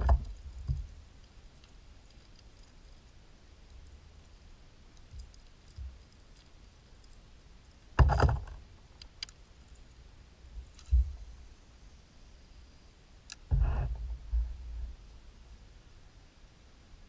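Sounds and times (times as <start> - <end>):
small clicks and soft knocks: 0.0 - 10.0, 13.2 - 14.4
loud thump: 13.5 - 14.5.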